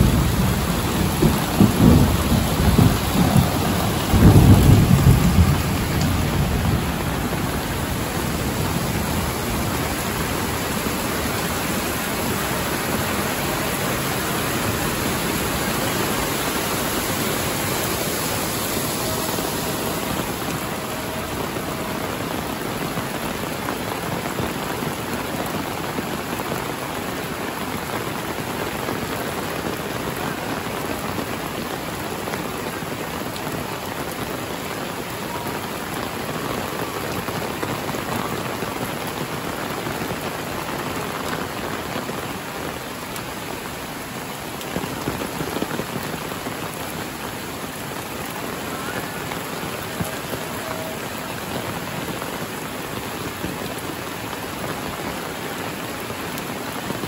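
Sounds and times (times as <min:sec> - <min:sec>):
thunder rumbling: 0:00.0 - 0:25.1
heavy rain: 0:00.0 - 0:57.0.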